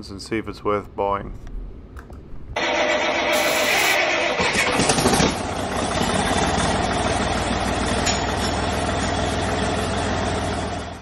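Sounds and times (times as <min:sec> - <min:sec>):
heavy engine running: 0:02.6 - 0:11.0.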